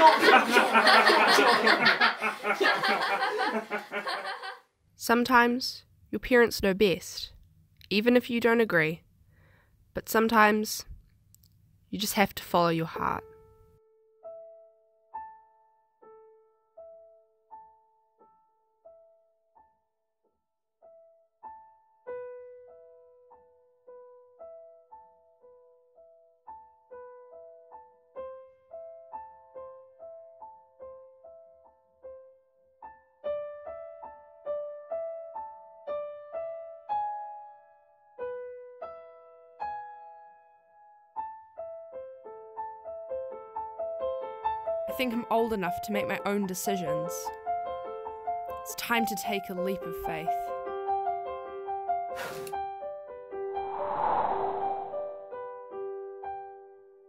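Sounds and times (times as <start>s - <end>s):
soft piano music: 12.9s - 53.5s, 55.6s - 57.0s.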